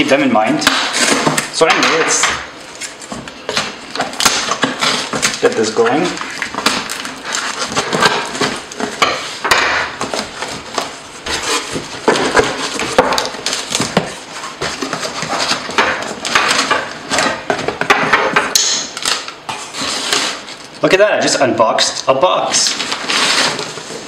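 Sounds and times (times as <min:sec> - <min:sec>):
cardboard rustling and crinkling: 0:00.9 - 0:09.4, 0:10.0 - 0:17.9, 0:19.0 - 0:20.8, 0:22.4 - 0:24.0
scissors cutting packing tape: 0:18.6 - 0:20.7.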